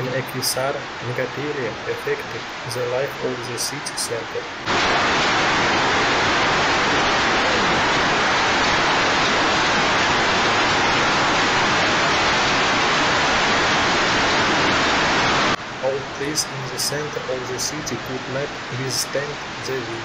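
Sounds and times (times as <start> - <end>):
heavy hail and rain on pavement: 4.6 - 15.6.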